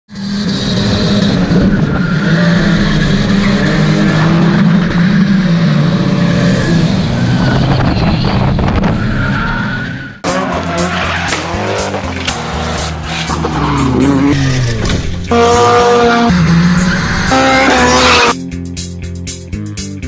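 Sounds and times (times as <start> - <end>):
car engines revving hard: 0.1 - 9.0, 9.6 - 18.4
tyres skidding and squealing: 0.1 - 18.4
music: 10.2 - 20.0.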